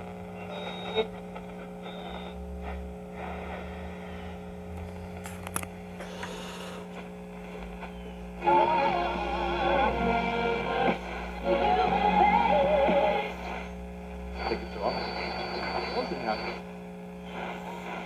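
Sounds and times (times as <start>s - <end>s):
radio static: 0.0s - 5.3s, 6.3s - 18.0s
steady hum: 0.0s - 18.0s
music from radio: 0.3s - 4.0s, 7.4s - 13.8s, 14.4s - 16.6s, 17.2s - 18.0s.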